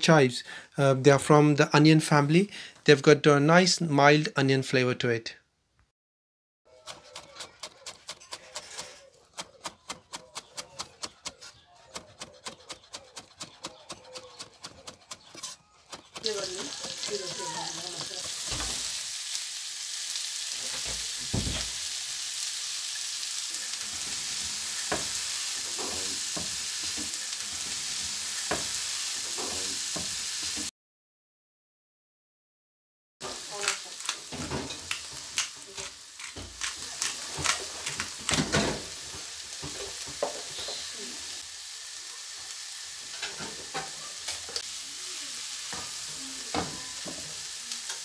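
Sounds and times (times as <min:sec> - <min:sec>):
knife chopping on wooden board: 0:06.8 - 0:17.1
onions sizzling in a frying pan: 0:15.9 - 0:30.7, 0:33.2 - 0:48.0.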